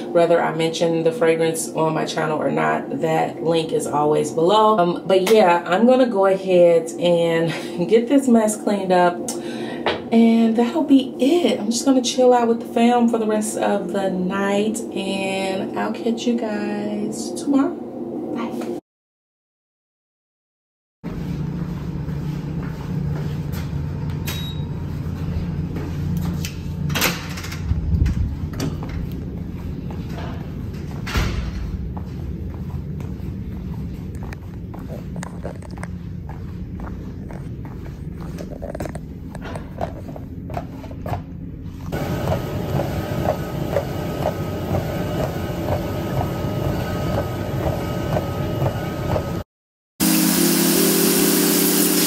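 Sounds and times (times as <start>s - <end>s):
steady low rumble: 24.8s - 40.5s.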